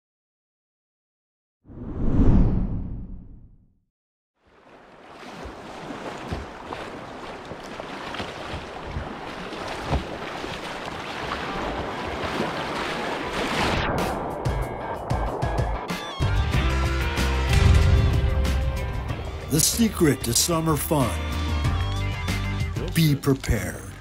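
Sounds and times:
whitewater rushing and splashing: 4.4 - 14.8, 19.0 - 22.0
music: 14.0 - 24.0.

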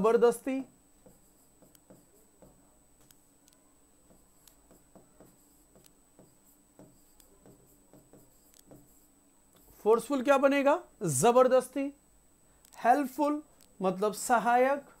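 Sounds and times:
faint steady hum: 0.0 - 15.0
pen writing taps and scratches: 1.0 - 9.7.

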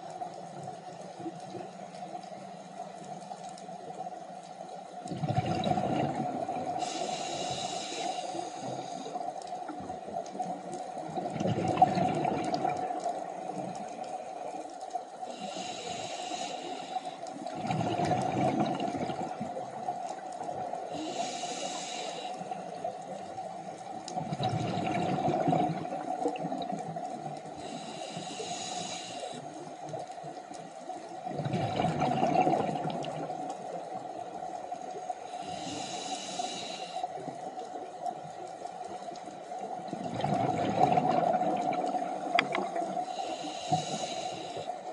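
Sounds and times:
burble of exhaled bubbles: 5.1 - 6.9, 11.1 - 13.7, 17.5 - 19.8, 24.1 - 27.0, 31.2 - 34.0, 39.8 - 43.2
regulator hiss on inhale: 6.6 - 11.1, 13.1 - 17.6, 19.4 - 23.6, 27.4 - 30.0, 33.4 - 37.8, 42.2 - 44.9.

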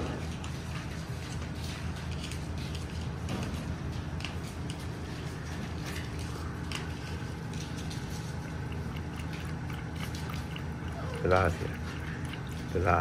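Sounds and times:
steady low hum: 0.0 - 13.0
puppy lapping milk: 4.1 - 13.0.

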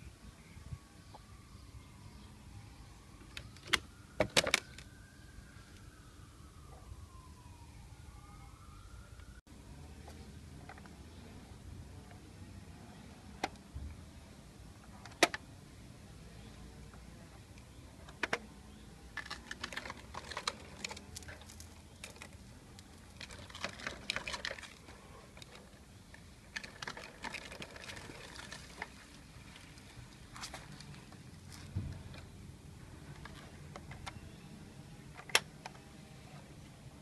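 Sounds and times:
plastic toy tractor clicking: 19.2 - 29.0.

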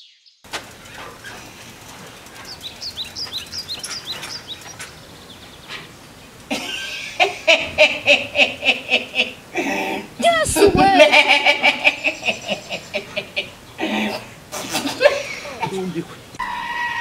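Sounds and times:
birds chirping: 0.0 - 16.4
man laughing loudly: 6.5 - 16.0.

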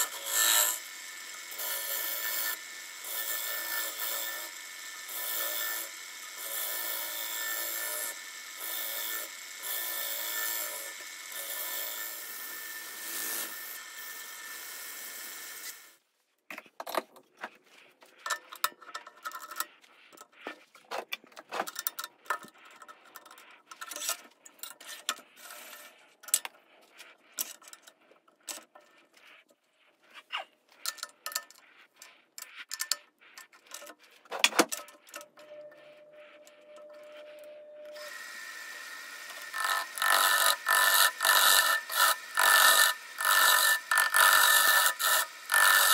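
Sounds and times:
lathe spinning wood with scrape: 0.0 - 16.1, 17.2 - 45.9
clicks and scrapes: 15.6 - 38.0, 39.2 - 45.9.

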